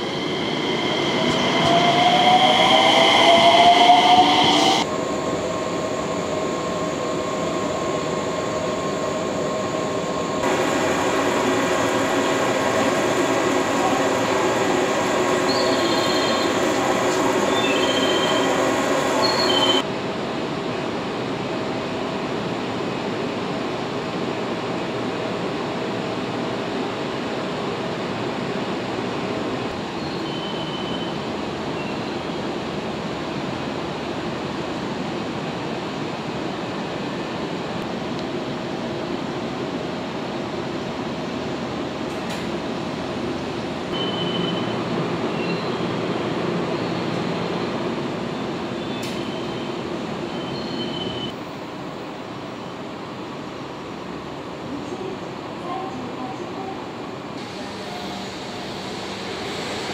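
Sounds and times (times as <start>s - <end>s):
electric train humming: 0.0s - 19.9s
short high squeals: 50.3s - 51.3s.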